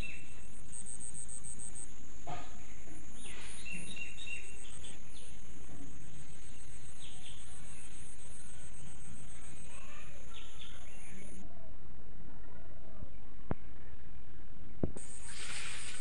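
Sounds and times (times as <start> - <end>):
cricket-like trill: 0.0 - 11.4, 15.0 - 16.0
fast pulsing insect chirp: 0.0 - 11.4, 15.0 - 16.0.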